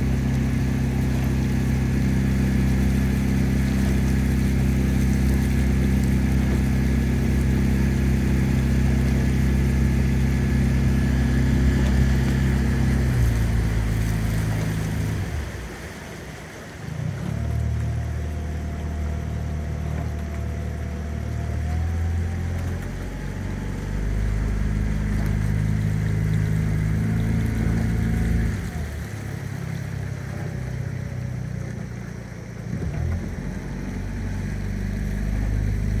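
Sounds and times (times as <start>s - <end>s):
outboard motor running: 0.0s - 36.0s.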